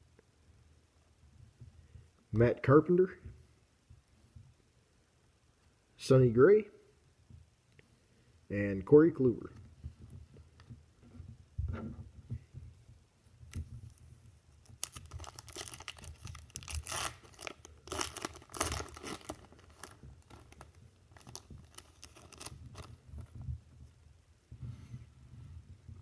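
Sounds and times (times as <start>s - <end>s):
foil wrapper tearing and crinkling: 14.6s - 23.0s.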